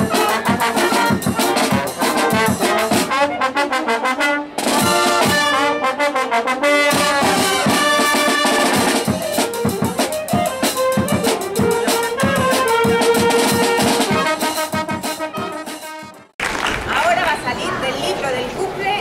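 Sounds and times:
snare drum: 0.0 - 3.2, 6.9 - 16.6
brass band melody: 0.0 - 16.4
bass drum beat: 7.0 - 16.3.

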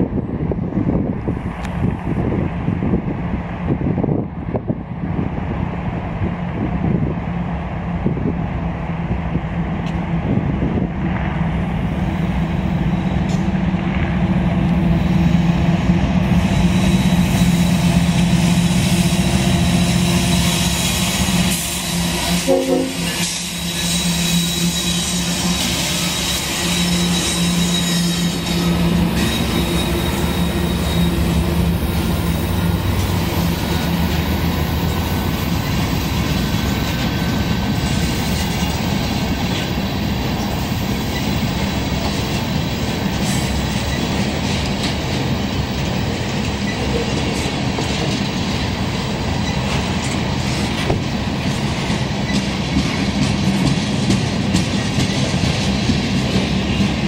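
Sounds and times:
diesel locomotive engines: 0.0 - 57.0
train wheels on rails: 0.0 - 57.0.

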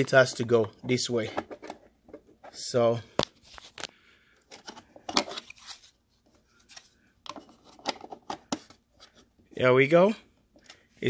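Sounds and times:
cover plate clicking and scraping: 1.3 - 2.5, 7.2 - 9.2.

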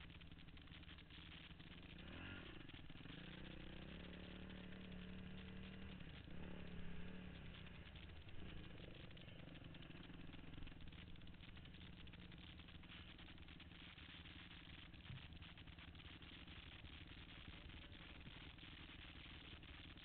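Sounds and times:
dirt bike engine revving: 1.6 - 11.8.

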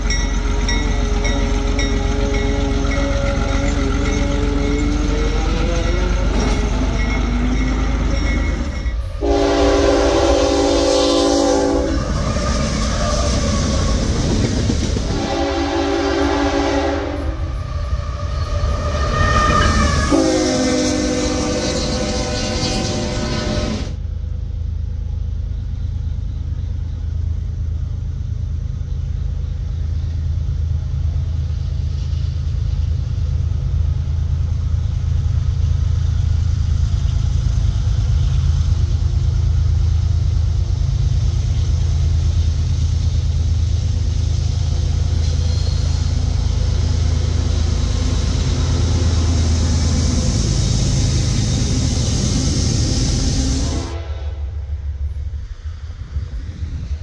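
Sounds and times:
freight cars rolling: 0.0 - 23.9
diesel locomotive engine rumbling: 0.0 - 57.0.

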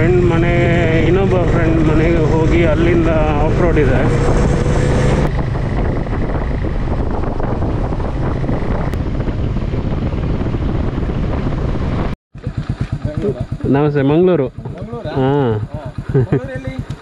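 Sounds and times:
wind buffeting microphone: 0.0 - 13.7
motorcycle engine running: 0.0 - 17.0.

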